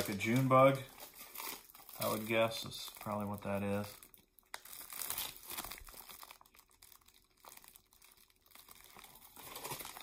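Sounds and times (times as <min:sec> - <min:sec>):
plastic bag crinkling: 0:00.0 - 0:10.0.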